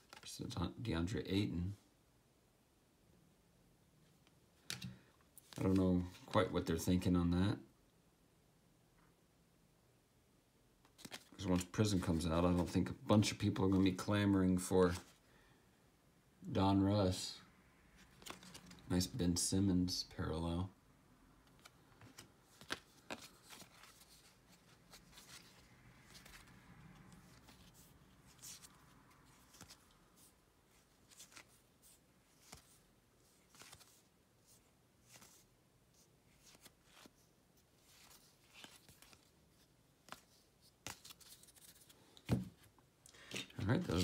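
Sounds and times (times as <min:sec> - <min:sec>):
trading cards being thumbed through: 0:40.0 - 0:44.0.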